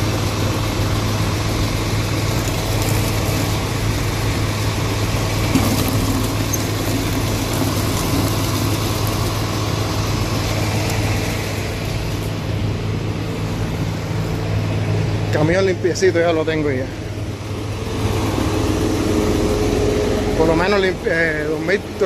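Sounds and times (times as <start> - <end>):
vehicle engine idling: 0.0 - 22.0
tap water running into a bucket: 2.1 - 11.5.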